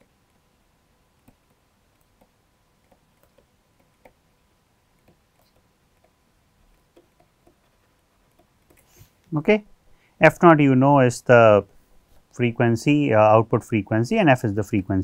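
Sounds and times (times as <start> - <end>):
stylus tapping on tablet screen: 1.2 - 4.3, 4.9 - 9.0.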